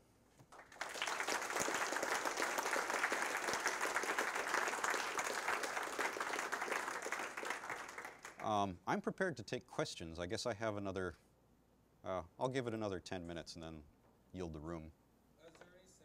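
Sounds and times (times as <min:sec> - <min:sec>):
audience applause: 0:00.5 - 0:08.6.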